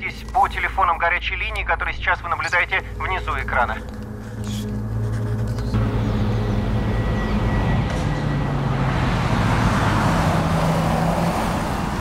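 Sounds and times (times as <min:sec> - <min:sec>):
car driving on slushy road: 0:08.5 - 0:12.0.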